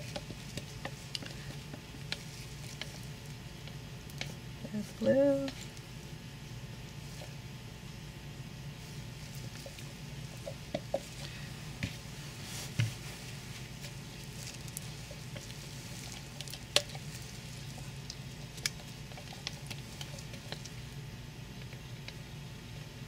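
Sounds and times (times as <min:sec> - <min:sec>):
utensils ticking against containers: 0:00.0 - 0:05.8, 0:13.8 - 0:20.9
low steady hum: 0:00.0 - 0:23.0
wet squishing of soap batter: 0:00.0 - 0:23.0.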